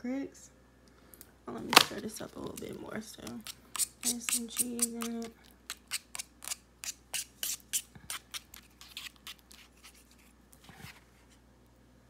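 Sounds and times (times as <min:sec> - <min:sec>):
plastic fork scraping a plate: 0:02.6 - 0:11.0.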